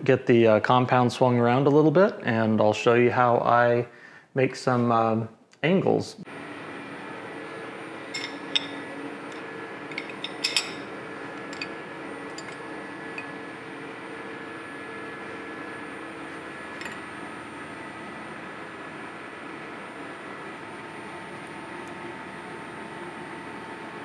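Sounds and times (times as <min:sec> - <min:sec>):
steady machine hum: 0:06.2 - 0:24.0
wrench clinking on metal: 0:09.9 - 0:10.8.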